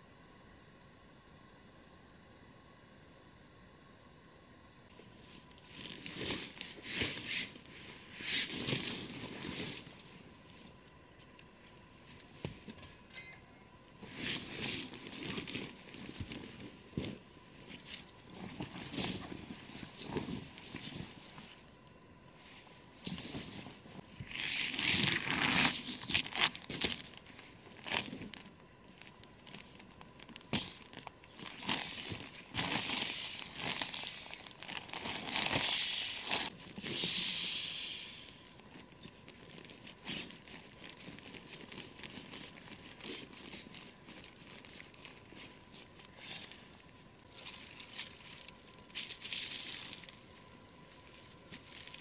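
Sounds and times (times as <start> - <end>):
canvas cloth rustling and flapping: 14.0 - 21.7, 22.6 - 28.4.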